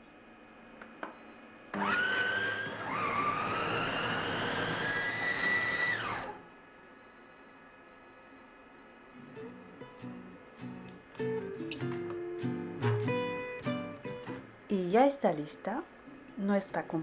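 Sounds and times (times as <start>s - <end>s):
kitchen robot blade motor whine: 1.8s - 6.4s.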